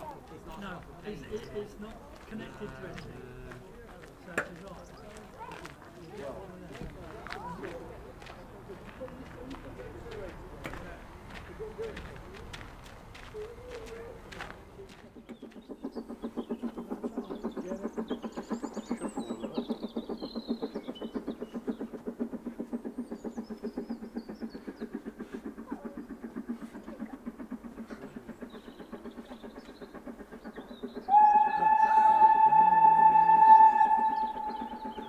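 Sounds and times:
faint birdsong: 0:00.0 - 0:35.0
steam locomotive chuffing: 0:00.0 - 0:35.0
steam whistle: 0:31.1 - 0:35.0.

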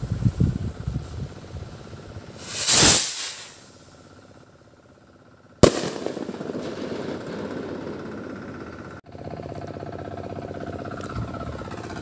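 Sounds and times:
firework rocket launch hiss: 0:00.0 - 0:04.0, 0:05.6 - 0:07.9
firework bang with rumbling echo: 0:05.6 - 0:09.0.

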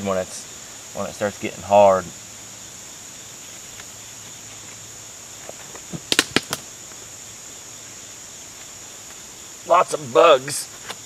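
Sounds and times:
crickets and insects chirring: 0:00.0 - 0:11.0
clicks and rustles in leaves: 0:03.5 - 0:07.0.

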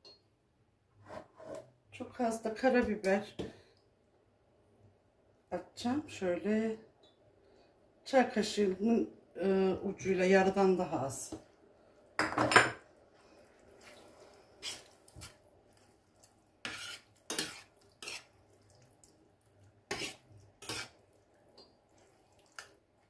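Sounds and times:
metal spoon scraping frying pan: 0:14.6 - 0:15.3, 0:16.6 - 0:18.3, 0:19.9 - 0:21.0.

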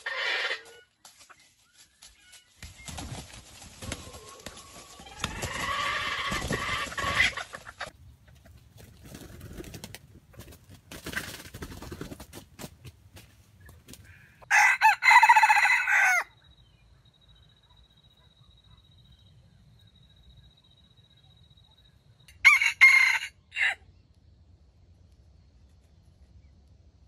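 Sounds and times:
rooster crowing: 0:14.4 - 0:16.4, 0:22.3 - 0:23.8.

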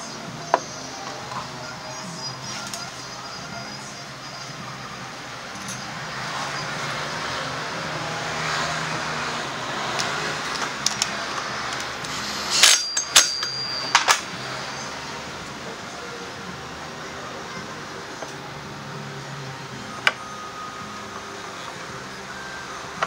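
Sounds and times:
low workshop hum: 0:00.0 - 0:23.0
metallic clinks and knocks: 0:05.5 - 0:06.0, 0:11.7 - 0:14.4.

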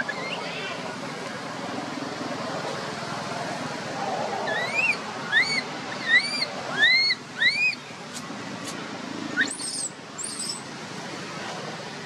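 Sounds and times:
baby monkey crying: 0:04.5 - 0:07.8.

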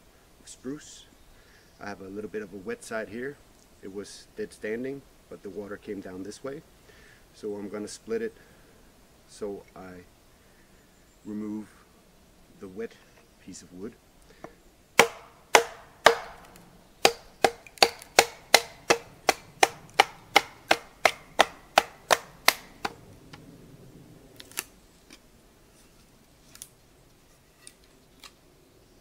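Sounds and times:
baton knocking blade through wood: 0:15.0 - 0:23.0.

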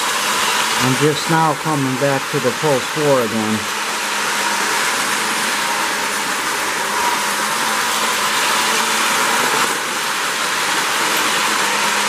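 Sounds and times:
toy train motor and wheels whirring: 0:00.0 - 0:12.0.

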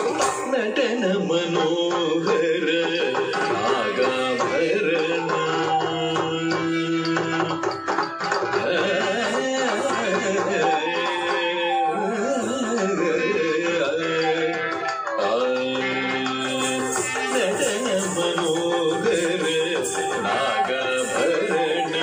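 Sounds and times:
hand drum pattern: 0:00.0 - 0:22.0
gliding wavering melody: 0:16.4 - 0:22.0.

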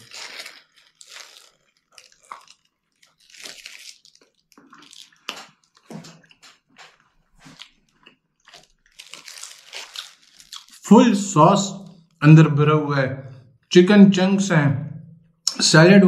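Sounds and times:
person chewing food: 0:00.0 - 0:10.8.

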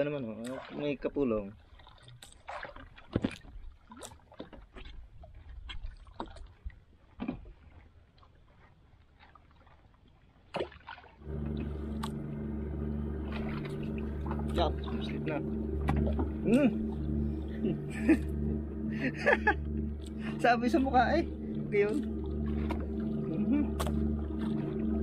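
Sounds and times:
small engine droning: 0:11.2 - 0:25.0
water dripping: 0:11.2 - 0:25.0.

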